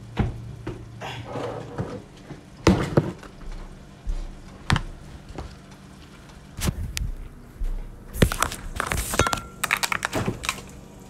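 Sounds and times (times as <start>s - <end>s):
low steady hum: 0.0s - 11.0s
cookware and utensils clattering: 8.8s - 10.6s.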